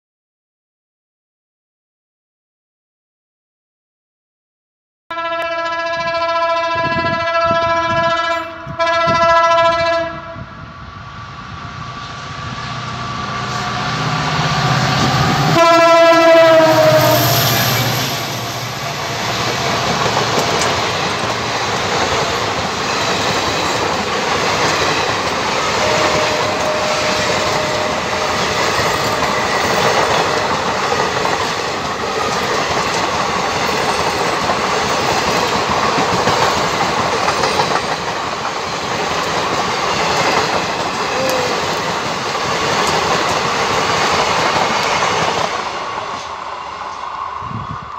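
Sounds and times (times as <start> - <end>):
locomotive horn blasts: 5.1 - 10.4, 15.5 - 17.4, 25.7 - 28.6
train rumble and clickety-clack: 5.4 - 47.9.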